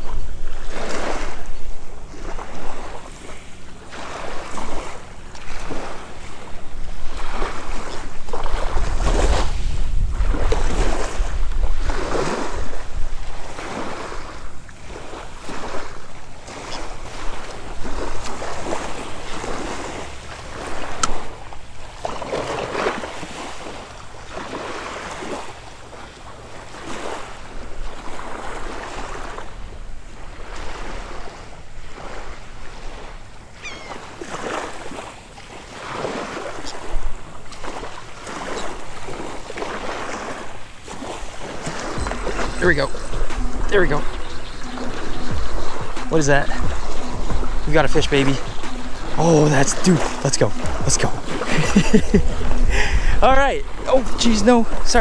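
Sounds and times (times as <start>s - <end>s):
small waves lapping on shore: 0.0s - 55.0s
wind buffeting microphone: 4.2s - 22.0s, 38.4s - 49.2s, 49.8s - 55.0s.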